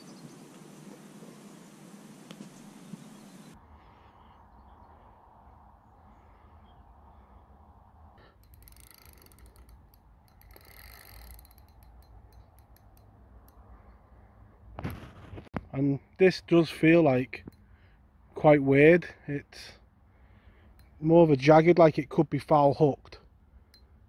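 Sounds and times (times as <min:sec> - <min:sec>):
fishing reel clicking: 0:08.2 - 0:13.6.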